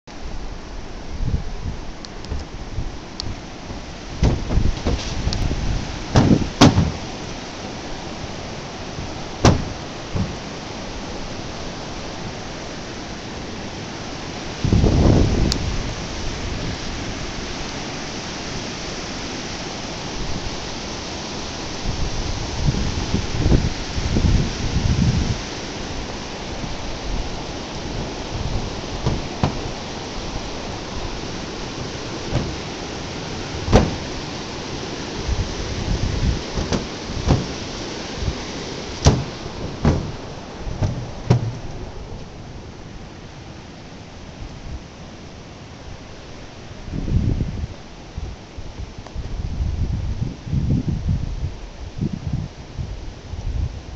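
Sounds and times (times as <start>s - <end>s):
river rushing over rocks: 0.1s - 47.0s
thumps: 3.7s - 5.2s, 6.1s - 7.1s, 9.4s - 10.5s, 29.0s - 29.8s, 31.8s - 32.8s, 33.7s - 34.2s, 36.5s - 37.8s, 39.0s - 41.9s.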